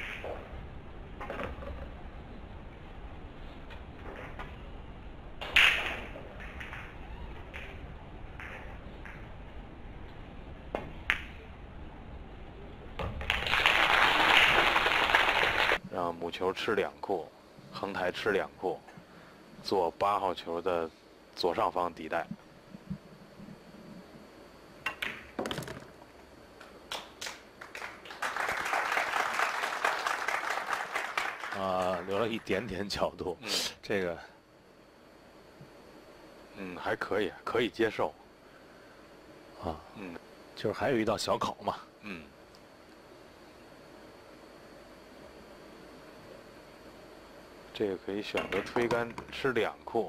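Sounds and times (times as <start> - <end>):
cue and balls clicking: 0.0 - 0.5, 5.4 - 9.4, 24.8 - 26.0
audience applause: 13.3 - 15.8, 27.6 - 32.2
ball dropping in pocket: 24.8 - 26.0.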